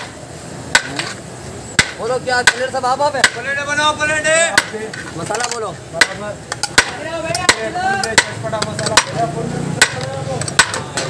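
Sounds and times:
voices murmuring: 0.8 - 11.0
metal spoon clanking on pot: 4.6 - 9.2, 9.8 - 11.0.

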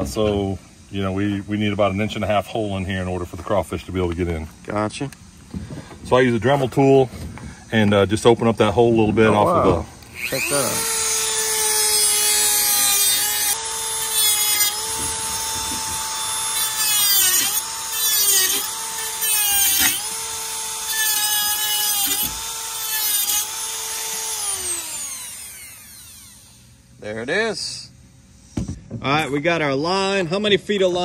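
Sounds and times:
rotary tool grinding wire: 10.1 - 26.7.

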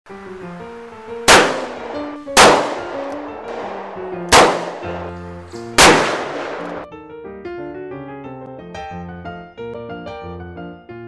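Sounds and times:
ragtime piano music: 0.1 - 11.0
revolver gunshots: 1.2 - 6.8.

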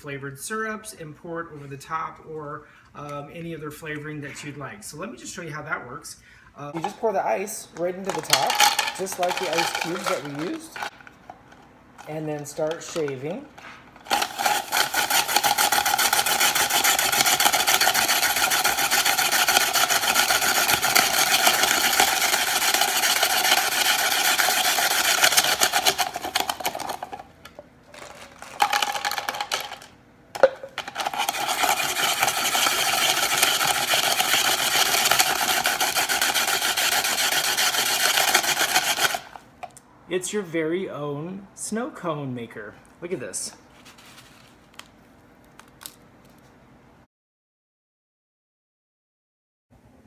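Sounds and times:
ice being poured: 8.0 - 10.9, 14.1 - 27.2, 27.9 - 29.9, 30.8 - 39.3
ice shaver grinding ice: 8.0 - 10.9, 14.0 - 27.3, 27.9 - 29.9, 30.8 - 39.4.

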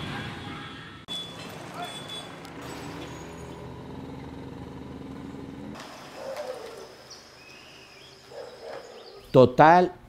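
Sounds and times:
bird calls: 5.2 - 9.4.

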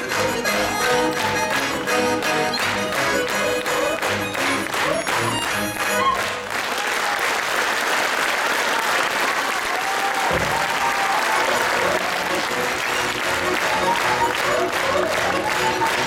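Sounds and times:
lively folk dance music: 0.0 - 7.1, 10.2 - 16.0
audience applause: 0.0 - 16.0.

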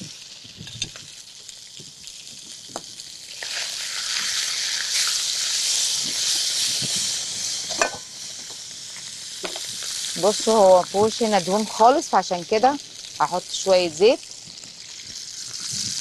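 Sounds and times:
sausage sizzling in a frying pan: 0.0 - 16.0.

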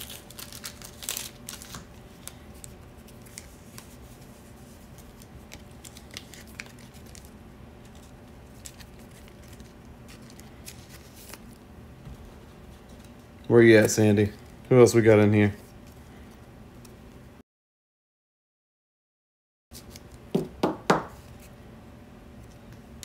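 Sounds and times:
plastic card sleeve crinkling: 0.0 - 11.7.

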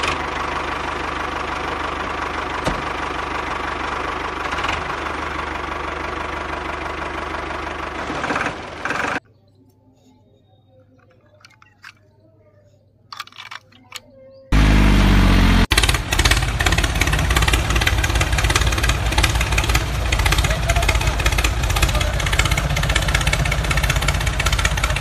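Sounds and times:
tractor engine knocking idle: 0.0 - 9.2, 14.6 - 25.0
plastic toy trolley clicks: 10.9 - 12.1, 13.1 - 14.1.

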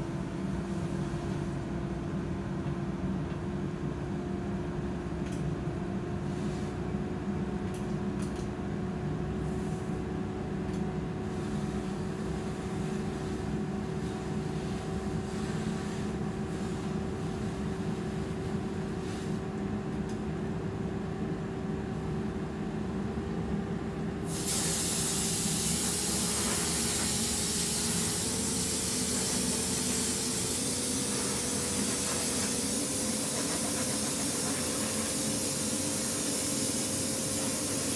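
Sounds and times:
extraction blower droning: 24.3 - 36.0
loud steady hiss: 24.3 - 37.9.

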